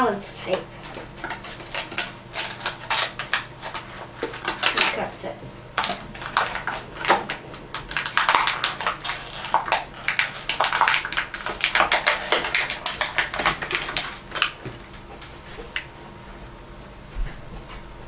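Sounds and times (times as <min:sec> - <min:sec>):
plastic packaging crinkling: 0:00.9 - 0:05.0, 0:05.8 - 0:14.6.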